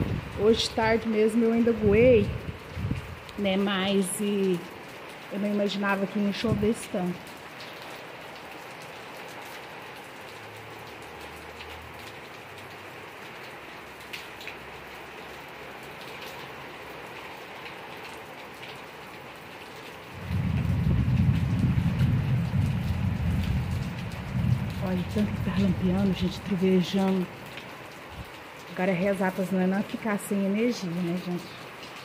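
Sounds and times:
thunder rumbling: 0:00.0 - 0:00.8, 0:01.7 - 0:03.2, 0:20.1 - 0:26.9
heavy rain on plants: 0:00.0 - 0:32.0.

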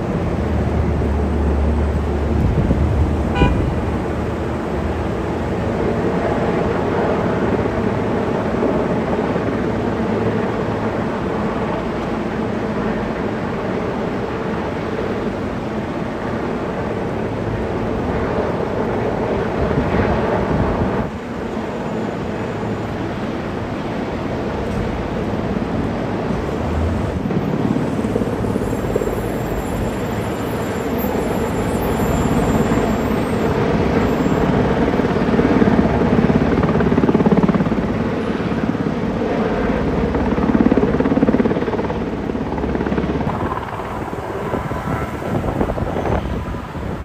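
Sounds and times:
helicopter rotor and engine: 0:00.0 - 0:47.0.

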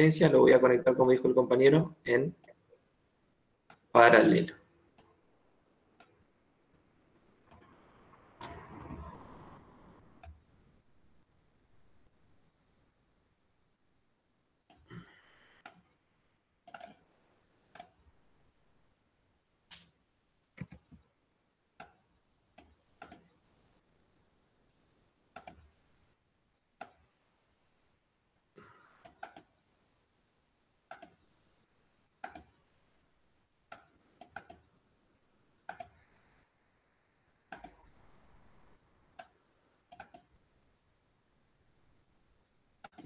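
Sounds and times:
computer mouse clicking: 0:07.5 - 0:07.7, 0:08.4 - 0:08.8, 0:15.6 - 0:16.0, 0:16.6 - 0:17.0, 0:17.7 - 0:18.0, 0:20.6 - 0:21.1, 0:21.8 - 0:23.4, 0:25.3 - 0:25.8, 0:26.8 - 0:27.1, 0:28.9 - 0:29.6, 0:30.9 - 0:31.2, 0:32.2 - 0:32.6, 0:33.7 - 0:34.8, 0:35.6 - 0:36.2, 0:37.5 - 0:38.0, 0:39.1 - 0:40.4, 0:42.8 - 0:43.0.

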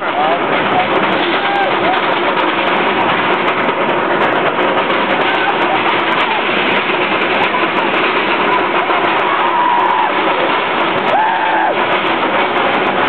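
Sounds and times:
roller coaster chain lift clatter: 0:00.0 - 0:13.0.

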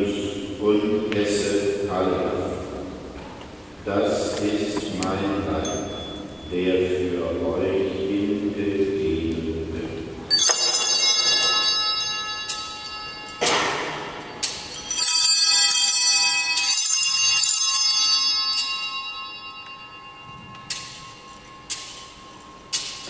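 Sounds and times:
small bells ringing: 0:04.1 - 0:08.2, 0:10.3 - 0:23.0.

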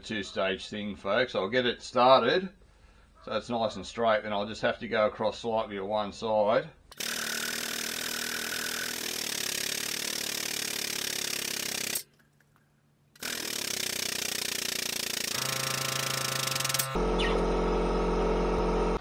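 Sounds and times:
hydraulic pump running: 0:06.9 - 0:12.0, 0:13.2 - 0:19.0.

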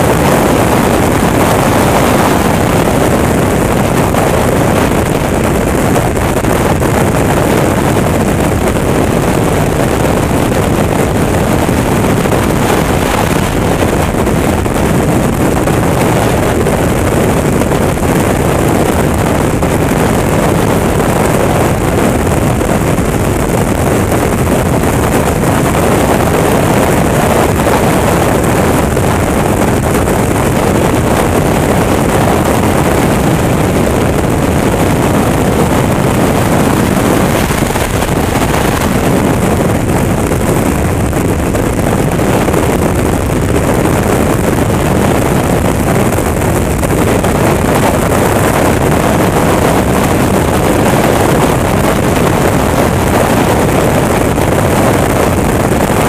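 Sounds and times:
wind rushing over microphone: 0:00.0 - 0:56.0
motorcycle engine cruising: 0:00.1 - 0:17.2.

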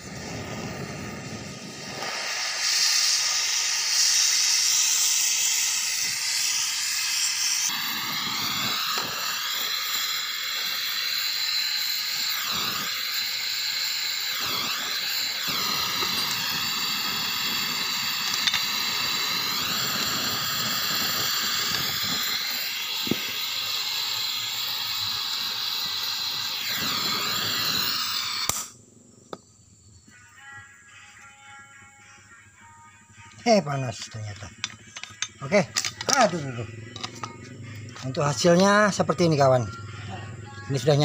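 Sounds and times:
gas torch flame hissing: 0:00.0 - 0:28.8
torch shutoff click: 0:00.0 - 0:28.8.

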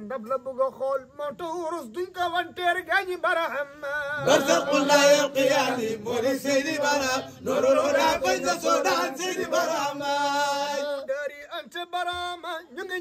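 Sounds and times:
man chanting a devotional song: 0:00.0 - 0:08.6, 0:09.2 - 0:13.0.

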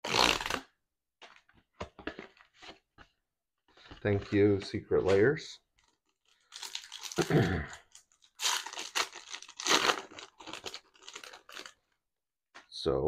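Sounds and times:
wrapper crinkling and tearing: 0:00.0 - 0:00.6, 0:05.8 - 0:12.0.

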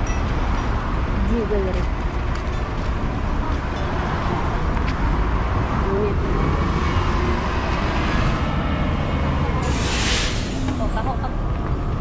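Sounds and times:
steady road traffic: 0:00.0 - 0:12.0
bus driving past: 0:03.0 - 0:12.0.

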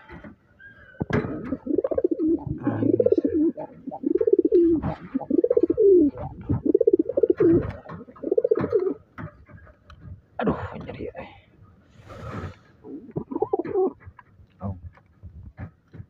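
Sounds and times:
pigeon cooing: 0:00.8 - 0:09.0, 0:12.2 - 0:14.1.

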